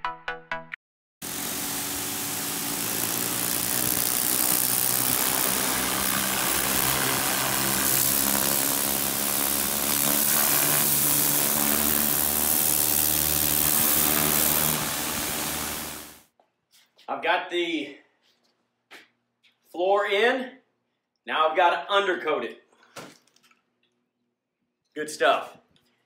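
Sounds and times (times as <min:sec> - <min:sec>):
water jet spray hissing: 0:01.2 - 0:16.2
pressure washer motor hum: 0:01.2 - 0:16.3.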